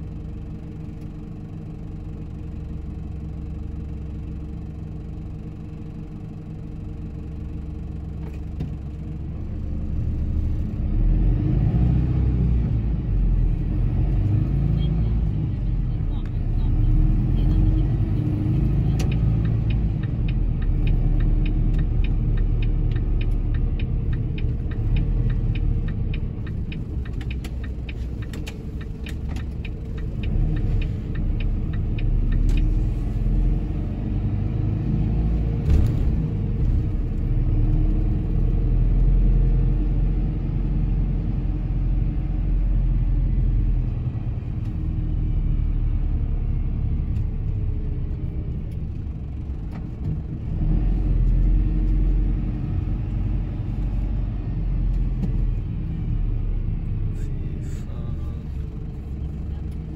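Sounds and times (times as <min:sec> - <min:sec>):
truck engine and road rumble: 0:00.0 - 0:59.9
turn indicator ticking: 0:13.2 - 0:35.6, 0:36.3 - 0:56.2.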